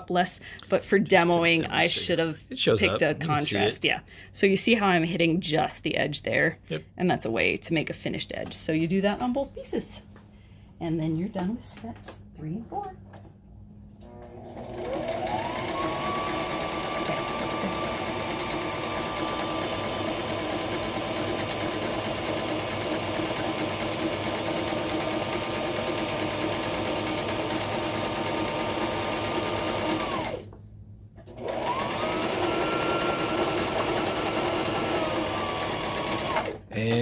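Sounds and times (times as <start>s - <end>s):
sewing machine running: 14.0s - 30.4s, 31.3s - 36.6s.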